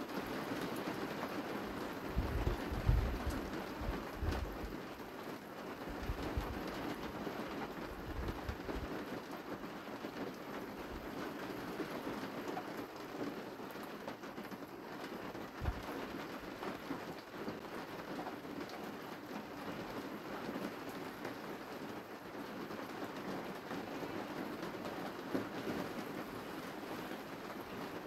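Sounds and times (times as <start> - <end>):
outdoor hiss with crackle: 0.0 - 28.0
wind buffeting microphone: 2.2 - 4.7.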